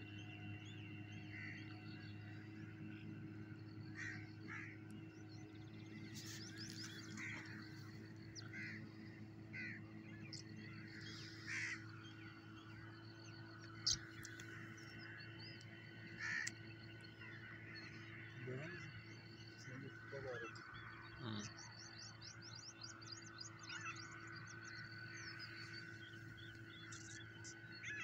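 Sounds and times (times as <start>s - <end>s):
steady low hum: 0.0s - 28.0s
harsh bird calls: 1.2s - 28.0s.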